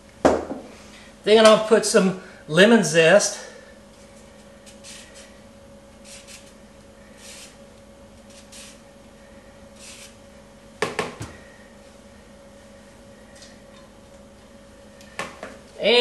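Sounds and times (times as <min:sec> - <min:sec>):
zester scraping lemon rind: 0:04.6 - 0:05.4, 0:06.0 - 0:07.6, 0:08.2 - 0:08.8, 0:09.8 - 0:10.2.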